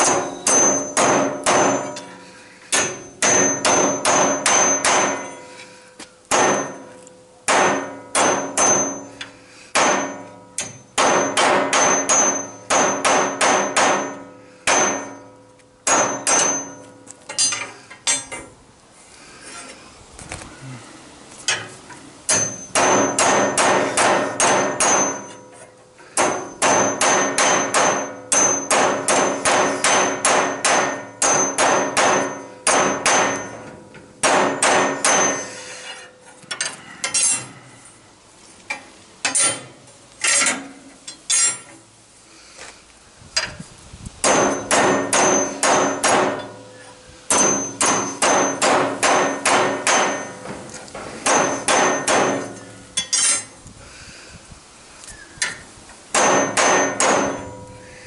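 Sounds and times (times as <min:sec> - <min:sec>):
hammer striking metal rod: 0:00.0 - 0:05.5, 0:06.3 - 0:18.5, 0:22.3 - 0:25.6, 0:26.2 - 0:37.4, 0:44.2 - 0:46.6, 0:47.3 - 0:50.5, 0:51.2 - 0:53.5, 0:56.1 - 0:57.7.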